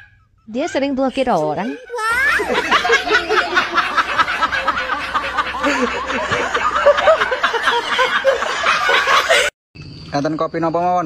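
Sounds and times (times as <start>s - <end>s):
people laughing heartily: 1.6s - 9.6s.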